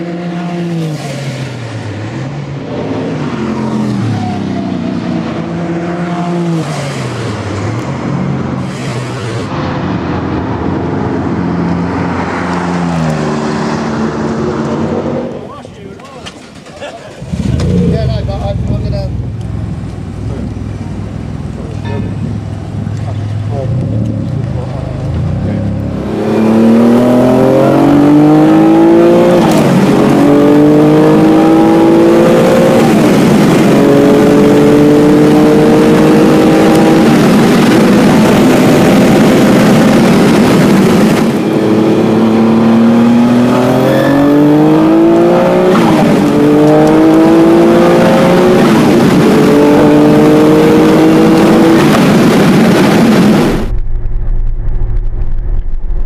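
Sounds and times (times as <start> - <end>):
car engine accelerating hard: 16.5 - 21.8, 22.4 - 53.8.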